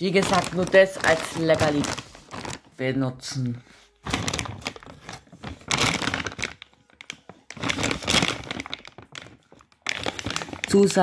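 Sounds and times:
plastic bag crinkling: 0:00.0 - 0:03.0, 0:04.0 - 0:11.0.

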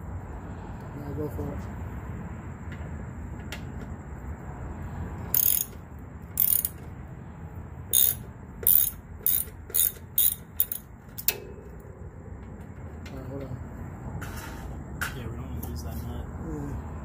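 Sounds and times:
socket ratchet clicking: 0:05.4 - 0:05.8, 0:06.4 - 0:06.8, 0:07.9 - 0:11.4.

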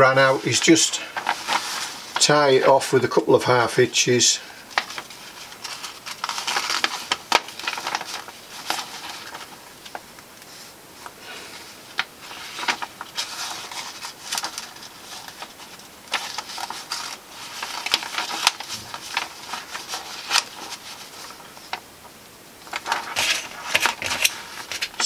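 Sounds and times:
paper rustling and crackling: 0:00.0 - 0:25.0
ticks of paper and thread: 0:11.9 - 0:21.8.

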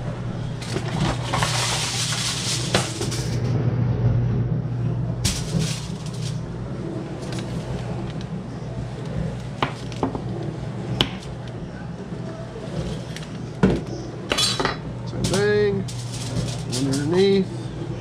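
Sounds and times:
steady low hum: 0:00.0 - 0:18.0
aluminum foil crinkling: 0:00.6 - 0:03.4, 0:05.3 - 0:06.5, 0:15.3 - 0:17.3.

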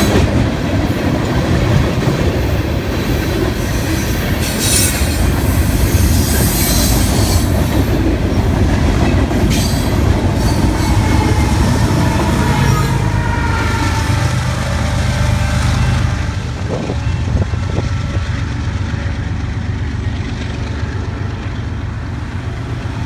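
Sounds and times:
train wheels on rails: 0:00.0 - 0:23.0
locomotive engine rumble: 0:05.1 - 0:23.0.

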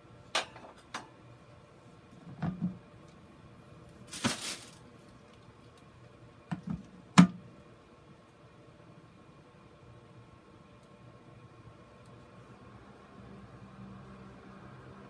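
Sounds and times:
plastic rustling crunch: 0:04.0 - 0:05.1.

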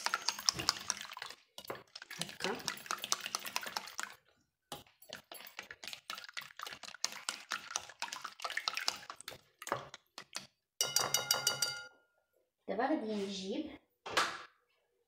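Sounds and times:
whisk beating in glass bowl: 0:00.0 - 0:11.9.

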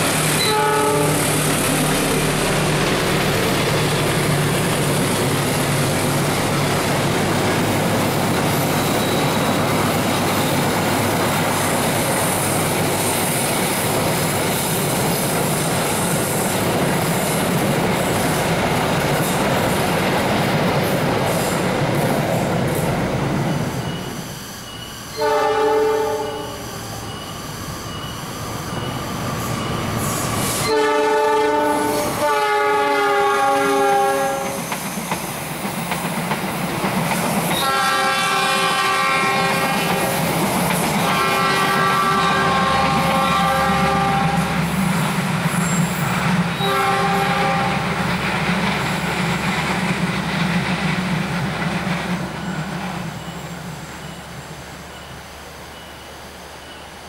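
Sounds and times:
train rolling on rails: 0:00.0 - 0:57.0
train horn blasts: 0:00.4 - 0:02.6, 0:25.1 - 0:26.7, 0:30.6 - 0:34.6, 0:37.5 - 0:40.2, 0:41.0 - 0:44.6, 0:46.6 - 0:47.9.

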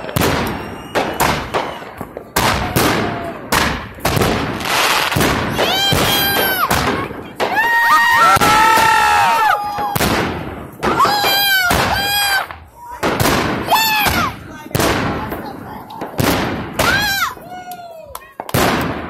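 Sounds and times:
fireworks bangs and pops: 0:00.0 - 0:19.0
fireworks hissing crackle: 0:04.0 - 0:08.0.

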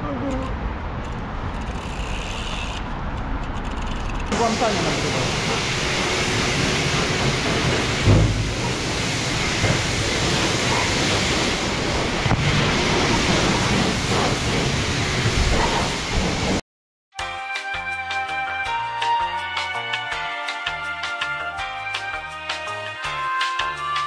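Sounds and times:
pressure washer spray hissing: 0:04.3 - 0:11.7
low thump: 0:08.0 - 0:08.8.

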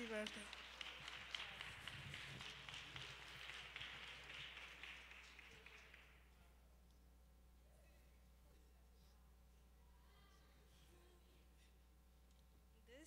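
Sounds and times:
faint applause: 0:00.0 - 0:06.3.

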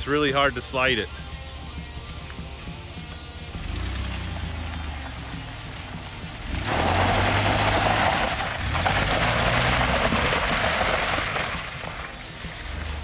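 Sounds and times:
car engine revving: 0:02.4 - 0:13.0
tyres spinning on gravel: 0:03.2 - 0:13.0.

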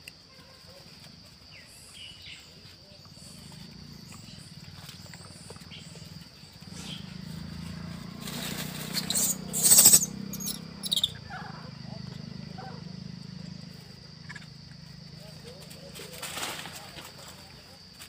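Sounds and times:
high insect drone: 0:00.0 - 0:18.0
crackling rustle: 0:02.6 - 0:10.1, 0:15.4 - 0:18.0.

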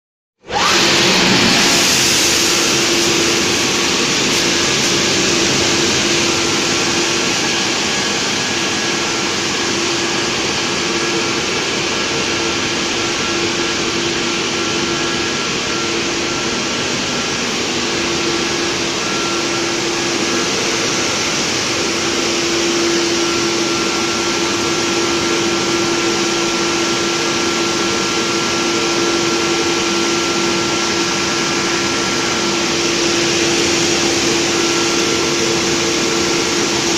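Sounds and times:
machine hum: 0:00.4 - 0:36.9
water jets spraying: 0:01.6 - 0:08.6.

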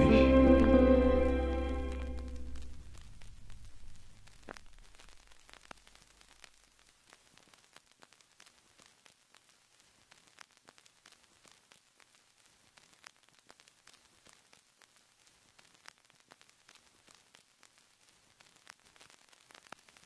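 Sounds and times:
low note of background music: 0:00.0 - 0:03.0
faint static crackle and clicks: 0:00.0 - 0:20.0.

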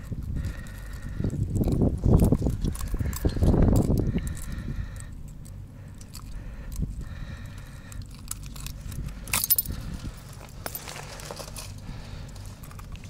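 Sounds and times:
metal tools clinking and rattling: 0:01.5 - 0:04.5, 0:07.9 - 0:13.0
rustling: 0:08.2 - 0:13.0.

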